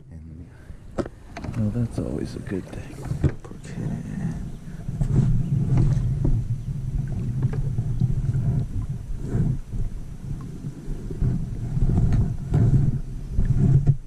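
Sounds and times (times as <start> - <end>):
steady low rumble: 0.0 - 14.0
knocks against kayak hull: 3.0 - 3.6.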